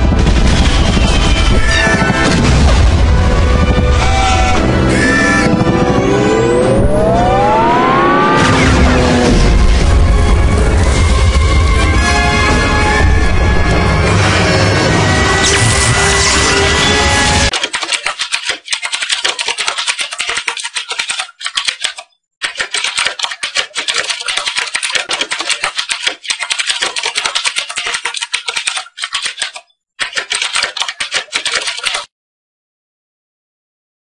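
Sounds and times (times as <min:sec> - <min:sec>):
typewriter key clatter: 0:17.5 - 0:32.1.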